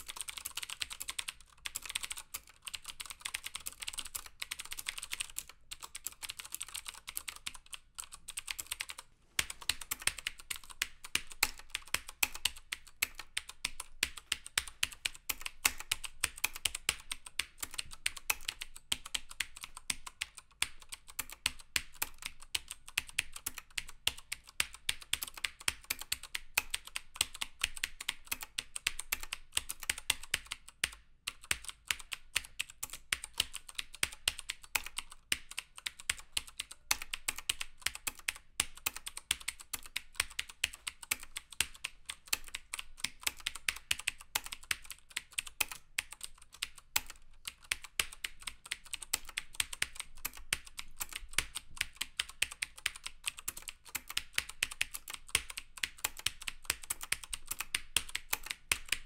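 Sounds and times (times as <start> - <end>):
mechanical keyboard typing: 0.0 - 59.0.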